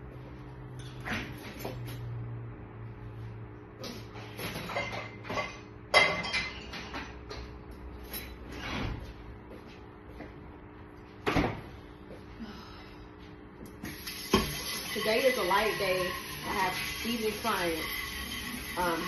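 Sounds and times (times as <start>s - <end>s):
steady low hum: 0.0s - 13.8s.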